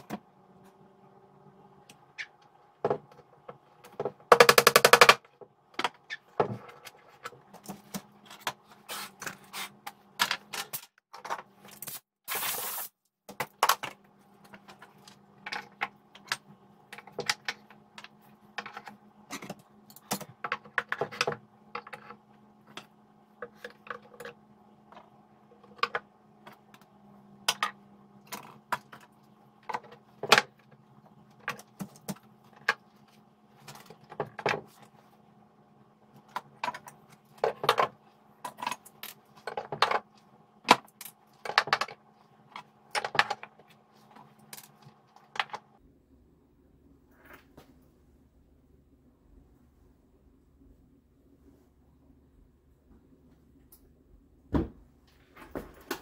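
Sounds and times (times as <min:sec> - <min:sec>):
faint steady hum: 0:13.4 - 0:56.0.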